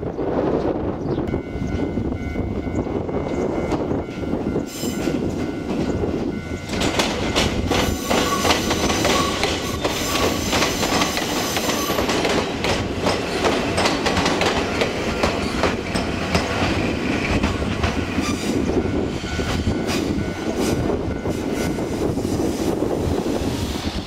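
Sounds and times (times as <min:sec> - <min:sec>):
level crossing alarm ringing: 0:01.3 - 0:12.0
train wheels clacking: 0:03.2 - 0:22.6.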